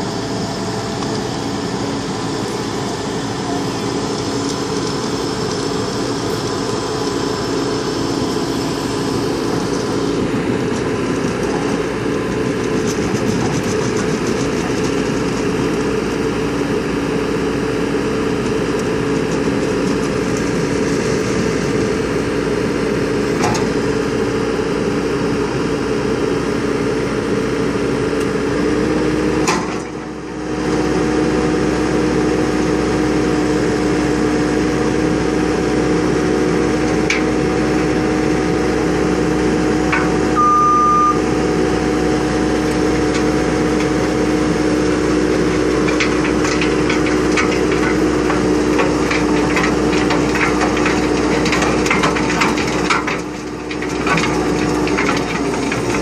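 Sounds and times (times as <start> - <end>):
diesel engine running under load: 0.0 - 56.0
short high-pitched tone: 40.3 - 41.3.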